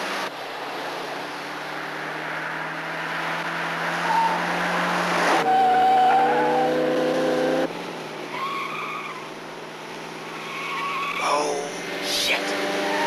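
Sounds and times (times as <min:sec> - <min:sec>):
car engine revving high: 0:01.2 - 0:07.7, 0:11.6 - 0:13.0
tyres squealing: 0:10.4 - 0:11.6.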